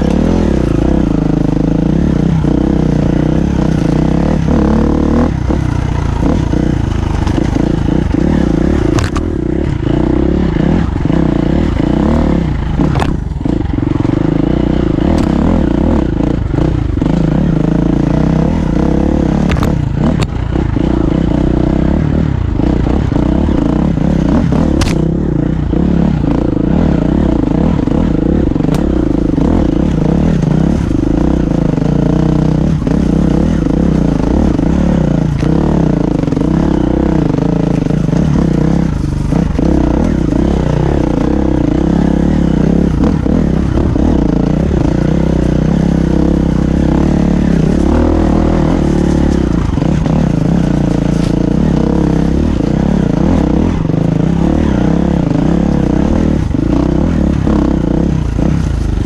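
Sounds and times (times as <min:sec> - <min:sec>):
dirt bike engine running: 0:00.0 - 0:59.0.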